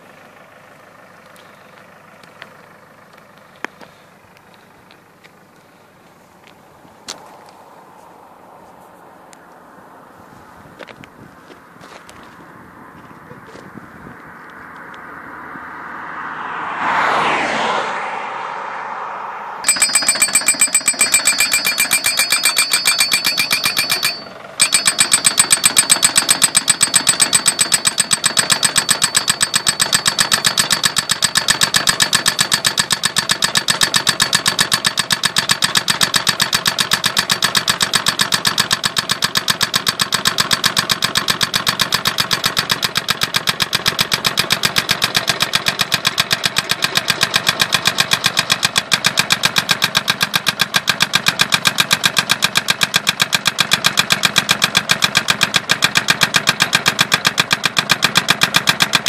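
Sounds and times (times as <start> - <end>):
post-driving hammer pounding: 19.6 - 59.0.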